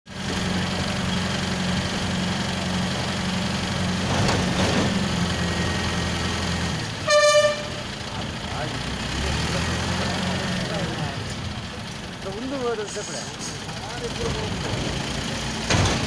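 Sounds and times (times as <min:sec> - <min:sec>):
diesel engine idling: 0:00.1 - 0:16.0
vehicle horn: 0:07.0 - 0:08.0.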